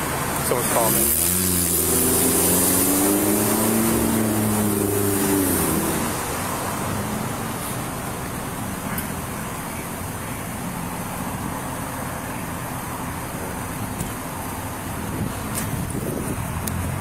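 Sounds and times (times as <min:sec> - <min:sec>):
road traffic and engines: 0:00.0 - 0:17.0.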